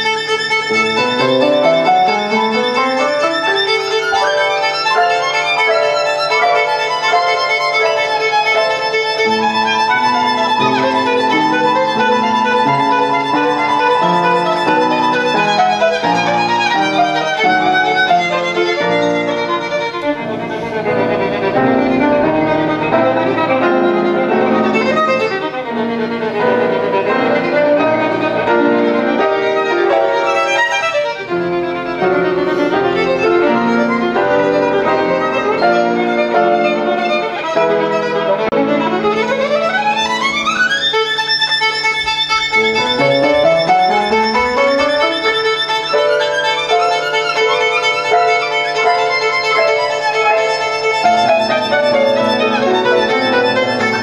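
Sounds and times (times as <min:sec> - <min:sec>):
upright piano accompaniment: 0:00.0 - 0:54.0
violin playing classical piece: 0:00.0 - 0:54.0.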